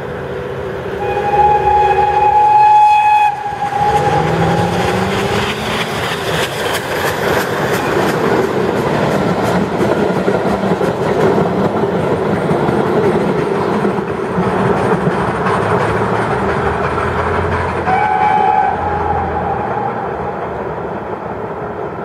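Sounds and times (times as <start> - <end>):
steam exhaust rushing: 0.0 - 9.8
steam locomotive whistle: 1.0 - 5.2, 17.8 - 20.3
train wheels clattering on rails: 1.0 - 22.0.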